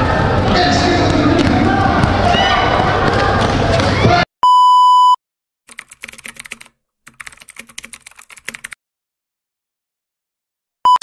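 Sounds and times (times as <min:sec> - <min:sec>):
loud steady beep: 0:04.4 - 0:05.2
keyboard typing clicks: 0:05.7 - 0:08.8.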